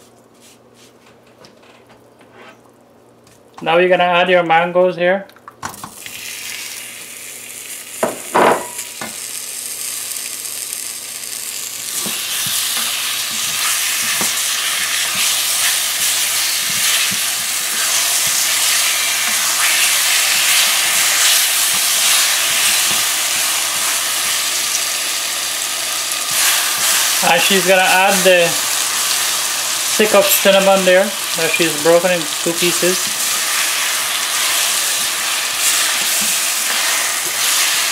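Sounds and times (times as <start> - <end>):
food sizzling in oil: 5.8 - 37.9.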